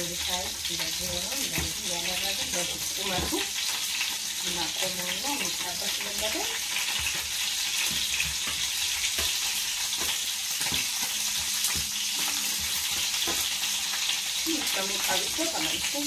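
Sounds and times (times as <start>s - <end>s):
meat sizzling in hot oil: 0.0s - 16.0s
tongs clacking against pan: 6.8s - 15.7s.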